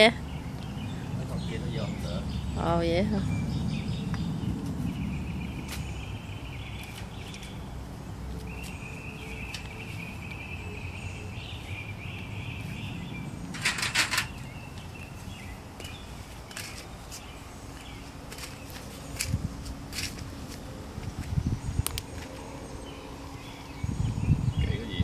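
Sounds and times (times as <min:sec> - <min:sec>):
garden gate rattling: 0:13.4 - 0:14.8.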